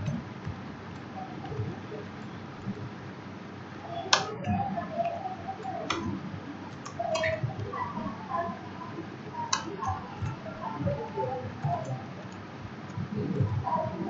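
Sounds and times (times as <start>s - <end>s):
faint background noise: 0.0s - 14.0s
mouse and keyboard clicks: 4.1s - 7.7s.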